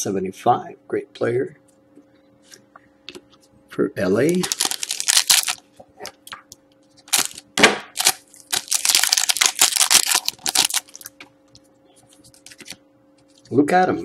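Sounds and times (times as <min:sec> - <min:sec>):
foil wrapper tearing and crinkling: 0:04.4 - 0:05.6, 0:07.0 - 0:07.4, 0:08.0 - 0:11.2.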